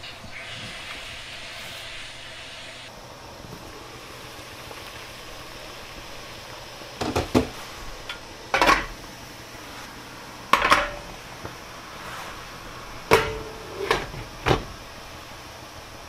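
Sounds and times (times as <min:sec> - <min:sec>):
boiling water hissing: 0:00.0 - 0:16.0
metal steamer tiers clattering: 0:07.0 - 0:09.0, 0:10.5 - 0:11.2, 0:13.0 - 0:14.7.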